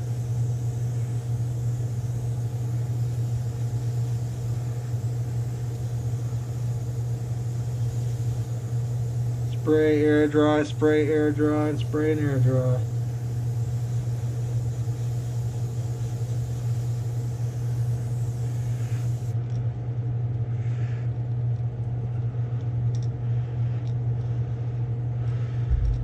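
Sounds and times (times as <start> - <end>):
low electric motor hum: 0.0 - 26.0.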